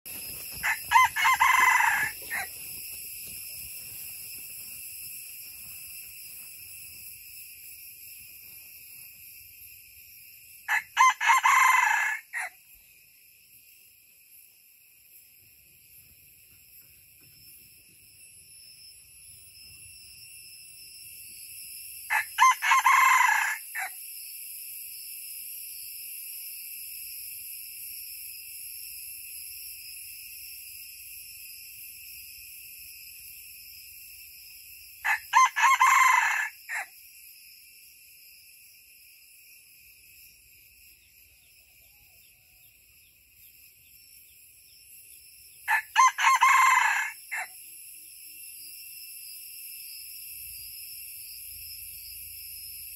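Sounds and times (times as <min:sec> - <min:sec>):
high-pitched insect chorus: 0:00.0 - 0:52.9
rooster crowing: 0:00.4 - 0:02.9, 0:10.7 - 0:12.6, 0:22.1 - 0:24.0, 0:35.0 - 0:36.9, 0:45.7 - 0:47.6.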